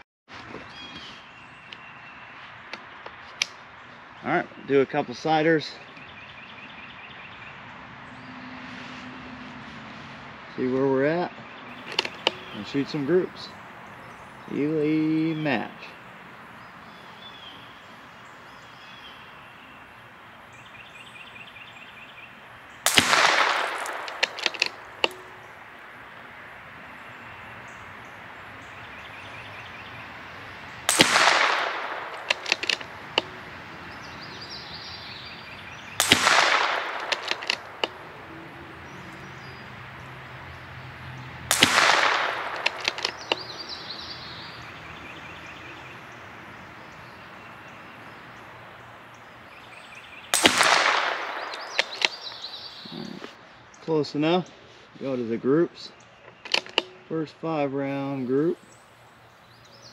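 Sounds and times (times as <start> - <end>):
rifle bolt clicks: 11.8 - 12.4, 22.9 - 25.4, 30.9 - 33.3, 36.0 - 38.0, 41.5 - 43.5, 50.4 - 52.5, 56.3 - 57.0
rifle shots echoing: 11.8 - 13.6, 22.8 - 26.2, 30.8 - 34.1, 35.5 - 39.4, 41.4 - 44.0, 50.3 - 52.9.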